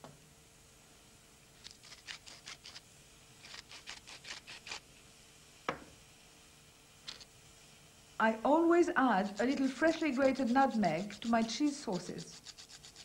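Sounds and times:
pepper mill grinding: 1.6 - 2.8, 3.4 - 4.8, 9.2 - 13.0.

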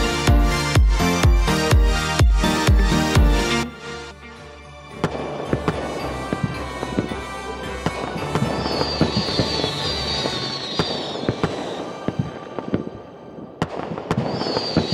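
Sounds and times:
music: 0.0 - 14.9
fireworks popping and crackling: 5.0 - 7.2, 7.8 - 13.0, 13.6 - 14.9
firework whistle: 7.9 - 14.9.

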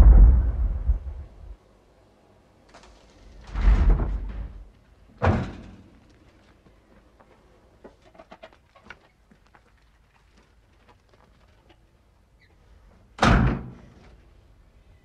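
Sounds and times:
loud slam: 0.0 - 1.2.

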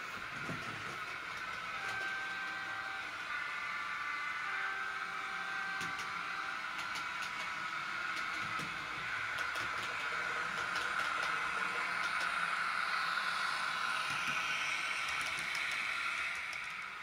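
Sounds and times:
model wheels clicking over rail joints: 5.8 - 17.0.

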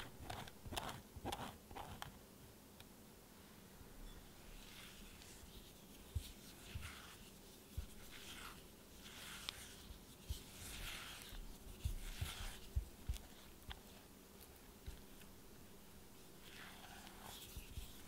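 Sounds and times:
spatula scraping flour in bowl: 4.5 - 13.5, 16.4 - 18.0.

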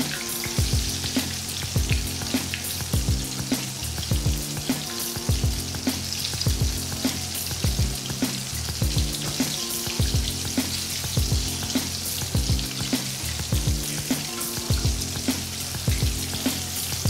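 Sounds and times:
background music with bass beat: 0.0 - 17.0
chicken deep-frying in oil: 0.0 - 17.0.

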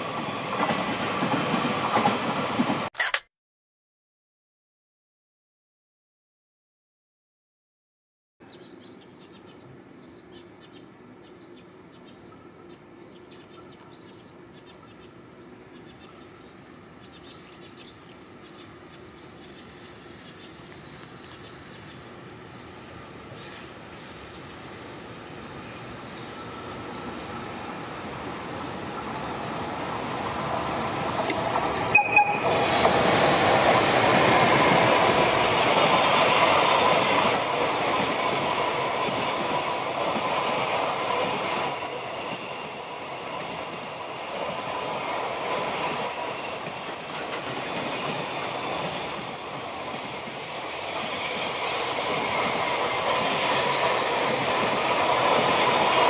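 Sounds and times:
train wheels on rails: 0.0 - 3.1, 18.5 - 56.0
short sharp sounds: 3.0 - 3.3.

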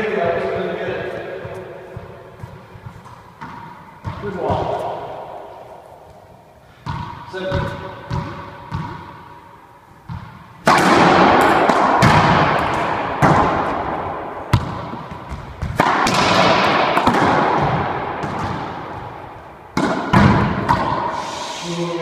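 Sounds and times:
ball bouncing on floor: 1.4 - 4.8, 6.8 - 9.1, 14.5 - 19.2, 19.8 - 21.0
racquetball cracks off racquet and walls: 10.0 - 21.2.

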